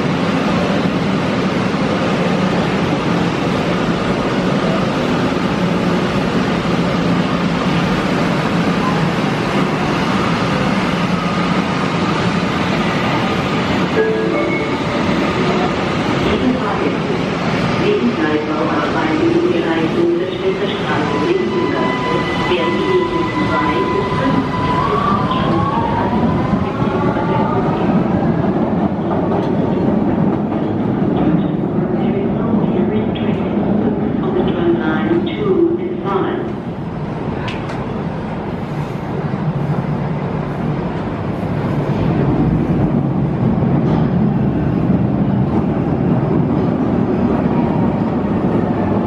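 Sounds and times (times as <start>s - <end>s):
train wheels rumbling on rails: 0.0s - 49.0s
brief high tones: 14.0s - 15.8s.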